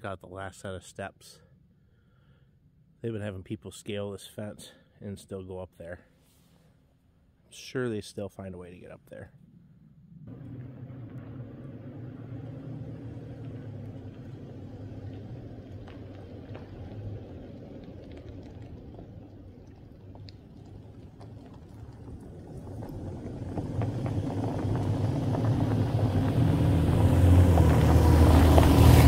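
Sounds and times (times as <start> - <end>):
pickup engine running: 10.3 - 29.0
tyres on gravel: 10.3 - 29.0.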